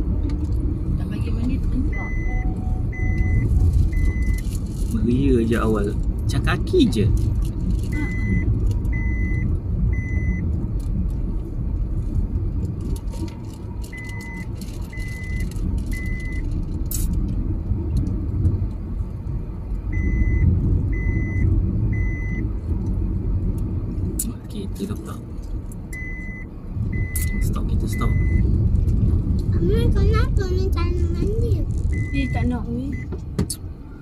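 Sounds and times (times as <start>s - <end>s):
car tyres and engine rumble: 0.0s - 34.0s
high beeps: 1.9s - 4.4s, 7.9s - 10.4s, 13.9s - 16.4s, 19.9s - 22.4s, 25.9s - 28.4s, 31.9s - 33.1s.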